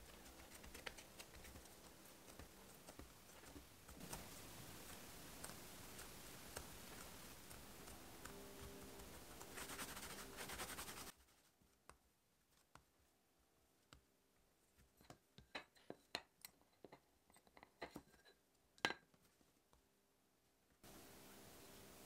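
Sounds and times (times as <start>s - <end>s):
hands rolling dough on stone: 0.0s - 13.0s.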